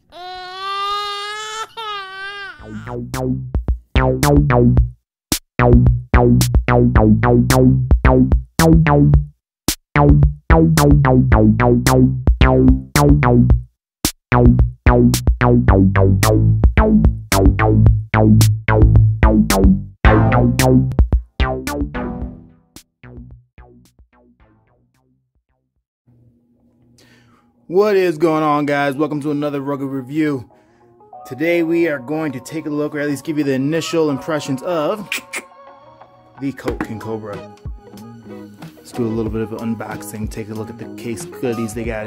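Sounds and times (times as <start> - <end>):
electronic music with drum-machine beat: 2.8 - 4.9, 5.6 - 9.3, 10.0 - 13.6, 14.3 - 22.4, 41.8 - 42.0.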